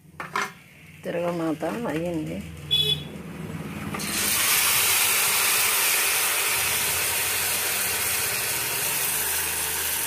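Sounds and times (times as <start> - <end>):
vegetables sizzling in hot oil: 4.0 - 10.0.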